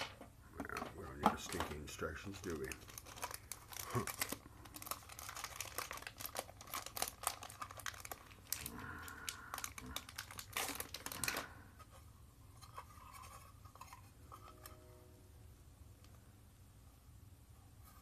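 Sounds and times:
faint handling sounds: 0.1s - 15.2s, 15.9s - 18.0s
plastic bag crinkling and tearing: 1.4s - 11.6s.

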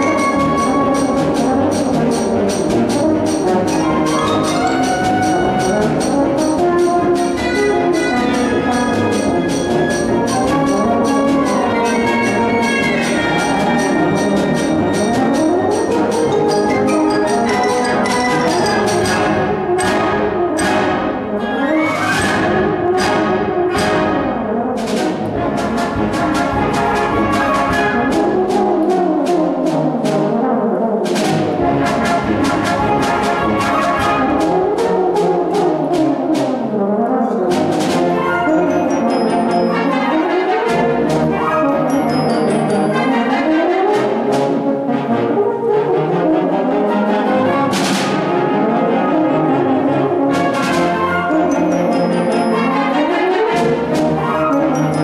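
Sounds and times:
euphonium playing fast runs: 0.0s - 19.6s
sharp percussion strikes: 0.0s - 21.2s
wind ensemble: 0.0s - 55.0s.

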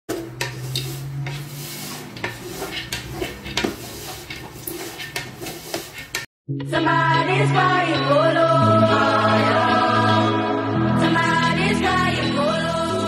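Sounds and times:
nuts scraping and rattling in pot: 0.1s - 6.3s.

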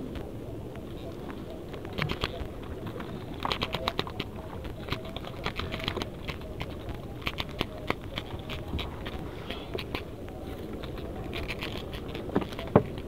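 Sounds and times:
net mesh crackling and clicking: 0.0s - 13.0s
steady low rumble: 0.0s - 13.0s.

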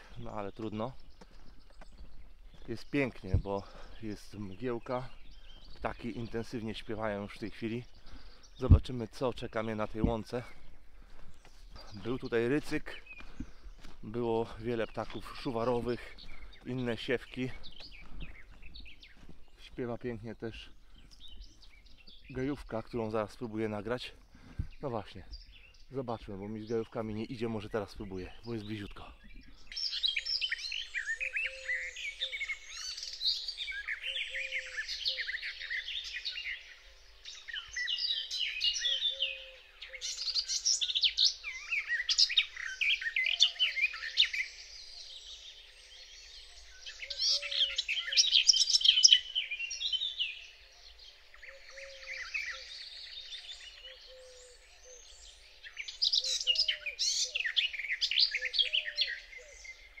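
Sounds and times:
faint birdsong: 0.0s - 60.0s
warbler singing: 0.0s - 60.0s.

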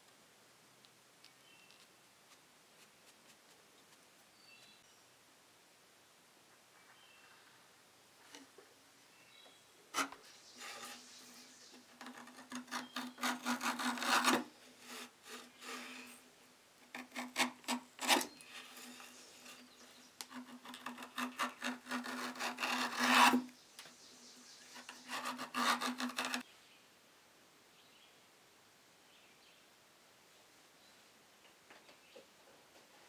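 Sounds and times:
metal tool scraping leather: 9.9s - 11.2s, 11.9s - 16.2s, 16.9s - 23.5s, 24.8s - 26.4s.

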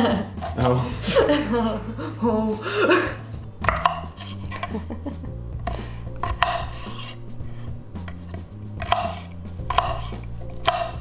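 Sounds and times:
background music: 0.0s - 11.0s
knife cutting on wooden board: 3.6s - 4.8s, 5.6s - 11.0s.

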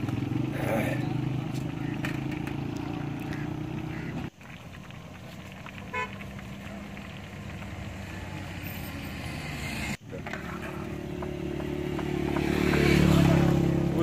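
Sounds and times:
fish frying in oil: 0.0s - 10.2s
vehicle horn toot: 5.9s - 6.1s.

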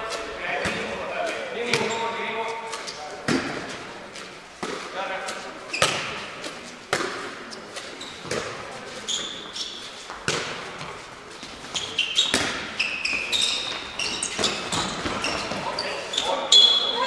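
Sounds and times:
sports shoes squeaking: 0.0s - 17.0s
ball bouncing and caught: 1.7s - 2.0s, 3.2s - 3.8s, 4.6s - 7.4s, 8.2s - 8.6s, 10.1s - 10.9s, 12.2s - 12.7s.

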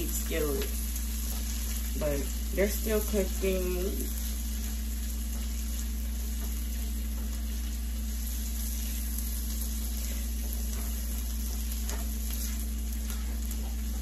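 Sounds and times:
vegetables sizzling in a skillet: 0.0s - 14.0s
spatula scraping a pan: 9.8s - 14.0s.

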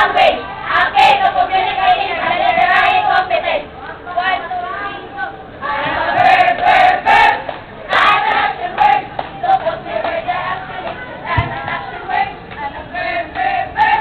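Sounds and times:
group chanting in unison: 5.6s - 12.3s.

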